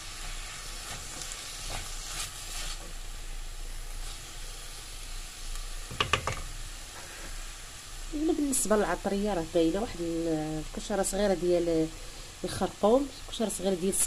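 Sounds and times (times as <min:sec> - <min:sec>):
food sizzling in a frying pan: 0:00.0 - 0:14.0
spatula scraping a pan: 0:00.1 - 0:02.9
spatula knocking against pan: 0:05.9 - 0:06.5.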